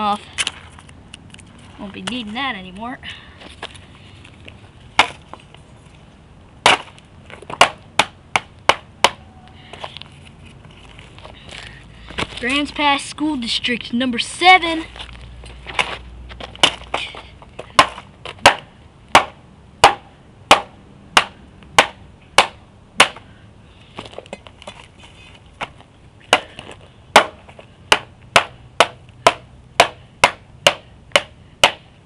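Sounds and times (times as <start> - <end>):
sharp knocks: 17.7 - 23.2, 27.1 - 31.9.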